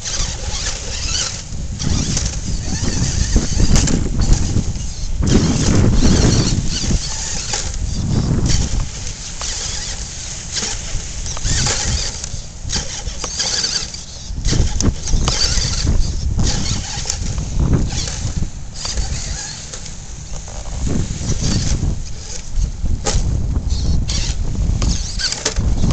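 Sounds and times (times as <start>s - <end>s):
sharp clicks: 0.0s - 20.5s
wind buffeting microphone: 0.0s - 25.9s.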